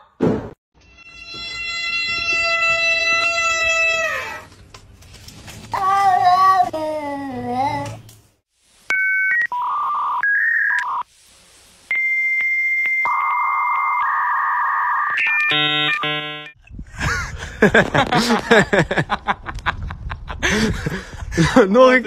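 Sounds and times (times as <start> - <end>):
dial-up modem tones: 8.9 - 11.0.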